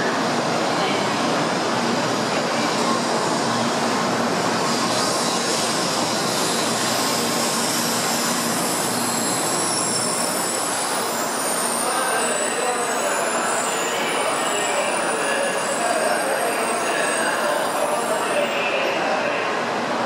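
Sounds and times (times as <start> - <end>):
high-pitched squeals: 6.5 - 18.6.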